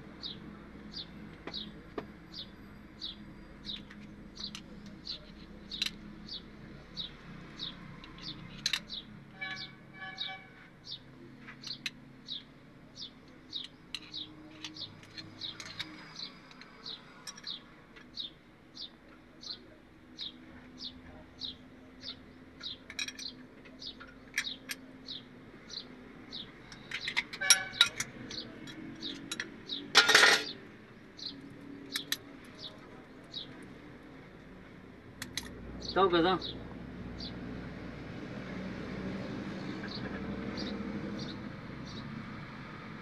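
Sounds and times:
metal tools clinking on engine: 7.6 - 9.6, 13.5 - 18.3, 22.6 - 25.8, 26.6 - 30.6, 31.9 - 32.7, 35.2 - 35.5.

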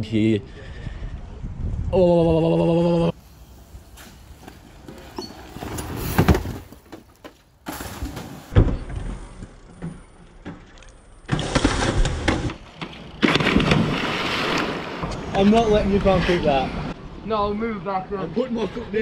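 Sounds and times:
bicycles rolling: 3.2 - 17.0
bikes clicking and rattling: 3.2 - 17.0
water splash rush: 13.2 - 15.4.

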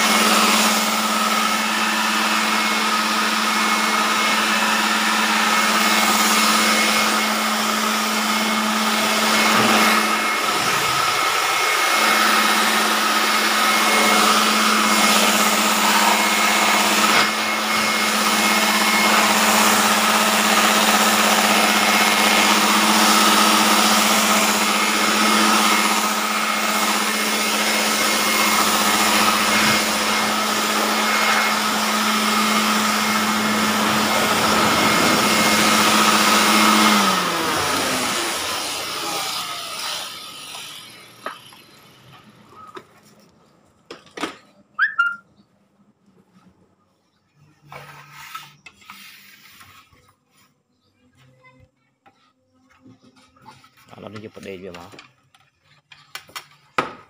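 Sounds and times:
electric fan whirring: 0.0 - 42.7.

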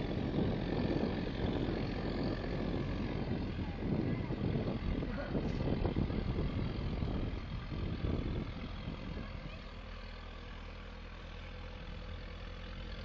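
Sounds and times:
diesel engine running: 0.0 - 13.0
irregular low rumble: 0.0 - 13.0.

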